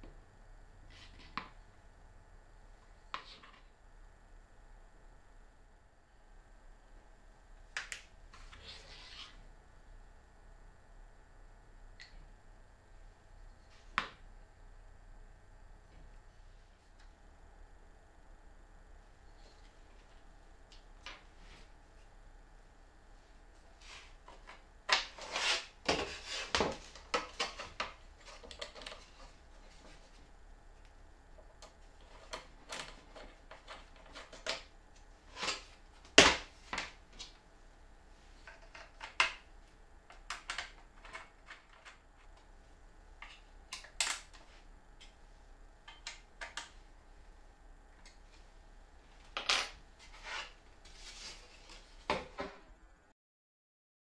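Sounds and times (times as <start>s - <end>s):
wooden board rustling and clattering: 24.2s - 30.2s.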